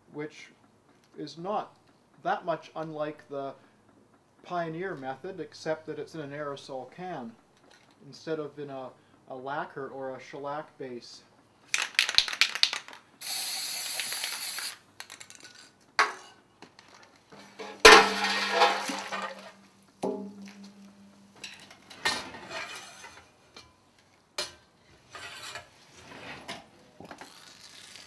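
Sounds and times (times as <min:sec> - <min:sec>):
aerosol spray hissing: 0:13.2 - 0:14.8
metal clanks and knocks: 0:17.3 - 0:23.8
low hum: 0:18.0 - 0:21.7.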